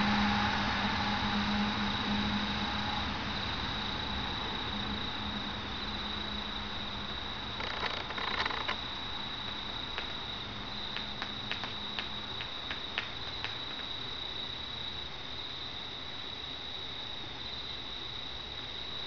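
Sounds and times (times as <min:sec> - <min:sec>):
crickets trilling: 0:00.0 - 0:19.0
brief rustle: 0:07.6 - 0:08.8.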